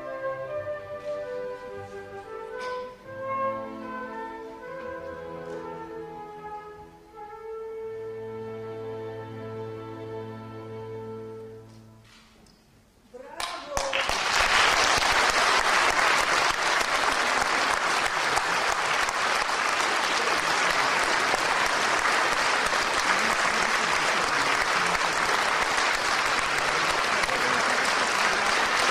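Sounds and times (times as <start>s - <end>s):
audience applauding: 13.4s - 28.9s.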